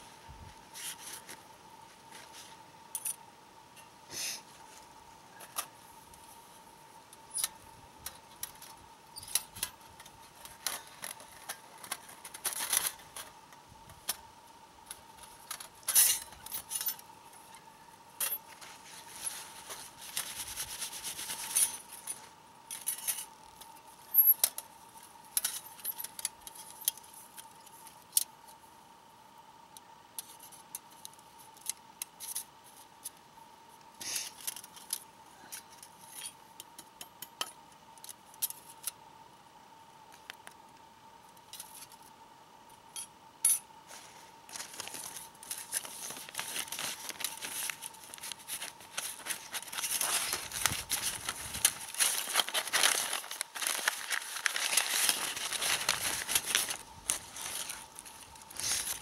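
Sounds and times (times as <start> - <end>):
paper towel rustling: 43.9 - 59.0.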